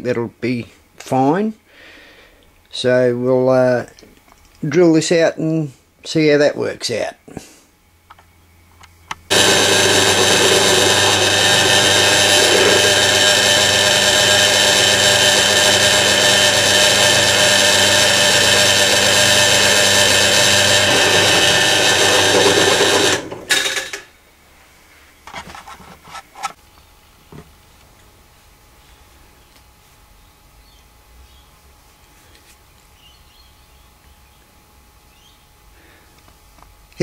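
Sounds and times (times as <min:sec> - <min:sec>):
drill press drilling into metal: 0:09.3 - 0:24.1.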